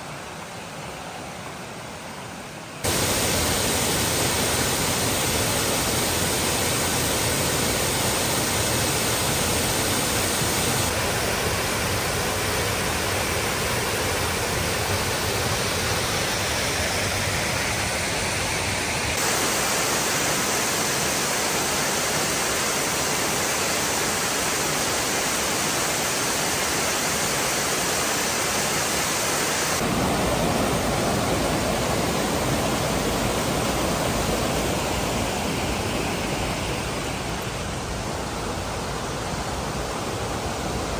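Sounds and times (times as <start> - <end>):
waterfall roaring: 0.0 - 40.9.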